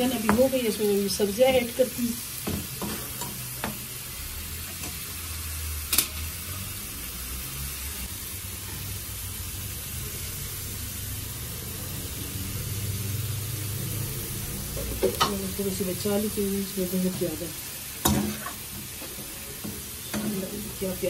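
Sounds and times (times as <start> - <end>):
food sizzling in frying pan: 0.0 - 21.0.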